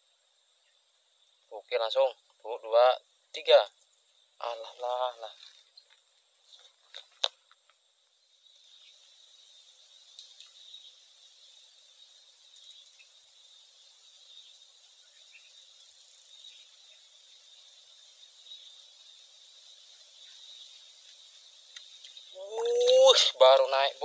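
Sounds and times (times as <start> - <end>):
insects chirring: 0.0 - 24.0.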